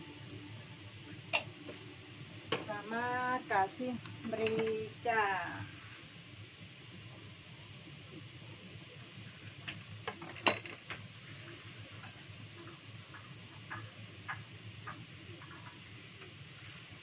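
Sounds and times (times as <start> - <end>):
low steady hum: 0.0 - 17.0
utensils clinking on steel bowl: 4.4 - 4.8.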